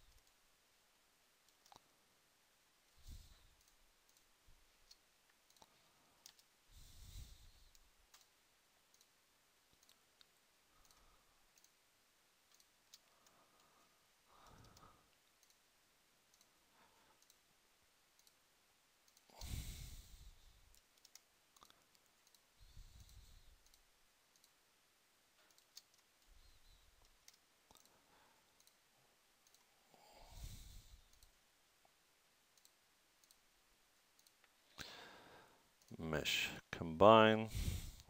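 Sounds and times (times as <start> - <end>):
computer mouse clicks: 0.1 - 0.4, 1.4 - 1.9, 2.9 - 6.6, 7.6 - 11.8, 12.4 - 15.7, 16.3 - 17.5, 18.1 - 18.4, 19.0 - 24.6, 25.4 - 28.8, 29.4 - 29.7, 30.4 - 31.4, 32.5 - 33.5, 34.1 - 34.9.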